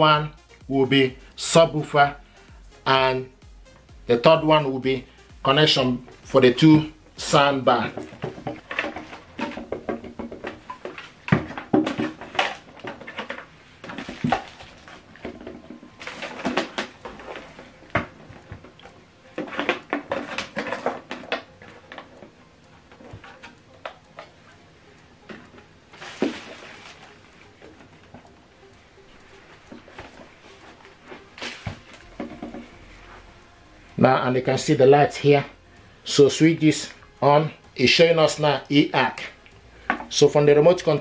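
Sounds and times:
plastic equipment clicking and knocking: 7.9s - 22.4s.

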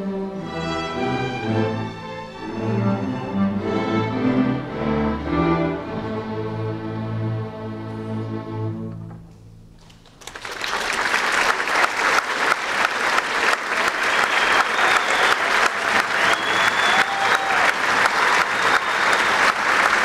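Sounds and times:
string orchestra: 0.0s - 9.4s
audience applauding: 9.8s - 20.0s.

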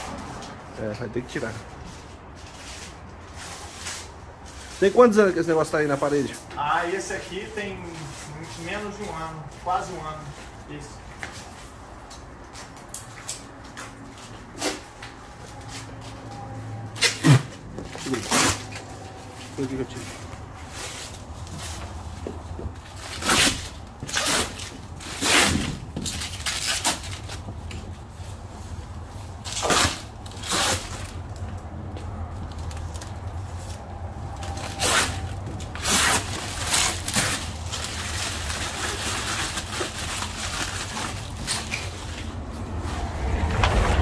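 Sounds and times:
paper tearing and scraping: 17.0s - 20.0s, 23.0s - 27.4s, 29.4s - 31.3s, 34.4s - 42.4s.

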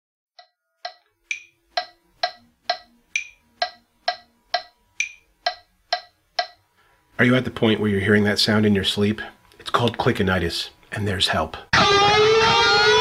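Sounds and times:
higher accented metronome click: 0.4s - 6.6s
metronome clicking: 0.4s - 6.6s.

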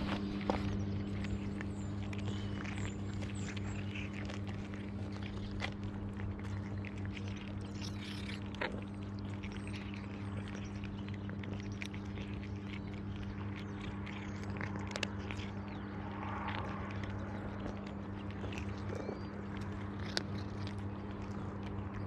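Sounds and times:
cats crunching dry kibble: 0.0s - 22.0s
steady low hum: 0.0s - 22.0s.

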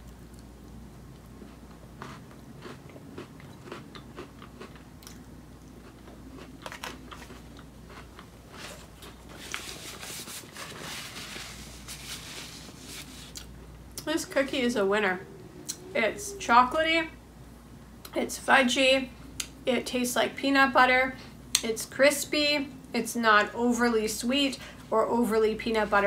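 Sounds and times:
crunchy cookie chewing: 0.0s - 9.8s.

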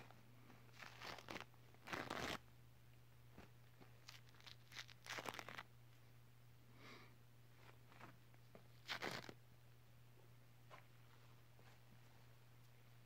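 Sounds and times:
tissue paper crinkling: 0.7s - 2.4s, 4.0s - 5.6s.

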